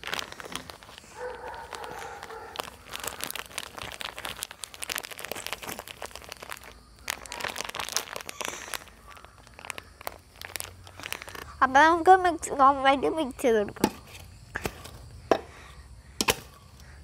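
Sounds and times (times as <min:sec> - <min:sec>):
plastic packet crinkling: 0:00.0 - 0:12.2.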